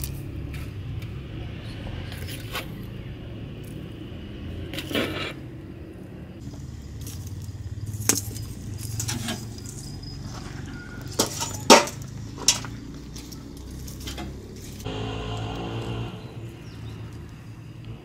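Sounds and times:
wood fire rumbling in stove: 10.6 - 17.2.

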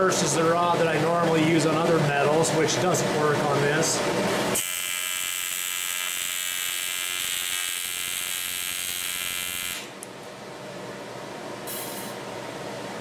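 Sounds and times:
welding arc buzz: 4.5 - 10.1, 11.7 - 12.2.

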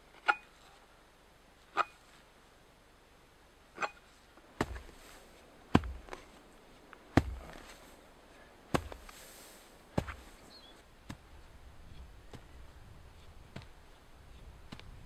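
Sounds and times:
axe chopping into soil: 4.6 - 5.1, 5.7 - 6.4, 7.1 - 7.8, 8.7 - 9.2, 9.9 - 10.4, 13.5 - 13.8.

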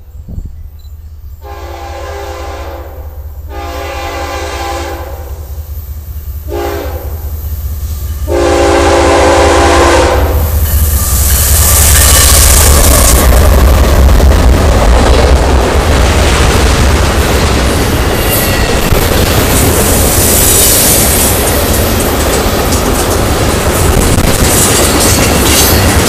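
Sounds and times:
rail noise hiss: 0.0 - 26.0
train engines and wheels rumbling: 0.0 - 26.0
train horn blasts: 1.4 - 5.6, 6.4 - 7.4, 8.2 - 10.6.

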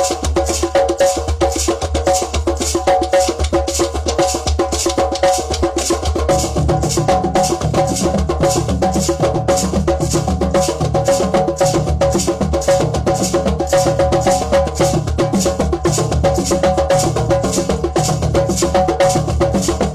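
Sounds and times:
hand drums playing fast rhythm: 0.0 - 19.9.

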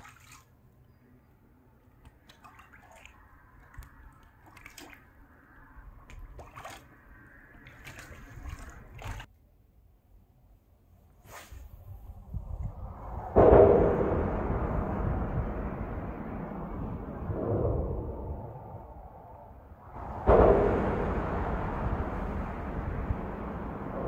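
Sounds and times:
wet fish handling clicks and squelches: 1.8 - 5.0
steady low rumble: 11.8 - 24.0.

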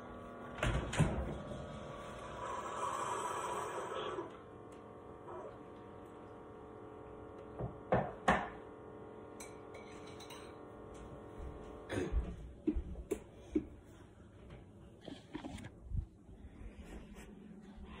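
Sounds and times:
kitchenware knocks and clinks: 9.4 - 10.6.

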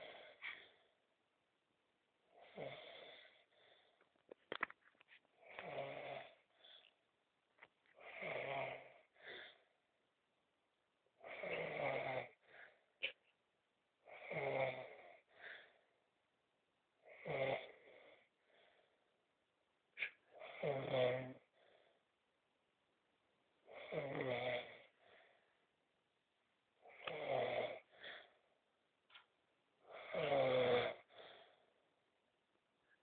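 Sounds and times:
man snoring: 2.3 - 3.4, 5.4 - 6.5, 8.0 - 9.6, 11.2 - 12.5, 14.1 - 15.2, 17.1 - 18.3, 20.4 - 21.5, 23.7 - 25.0, 26.8 - 28.0, 29.8 - 31.2.

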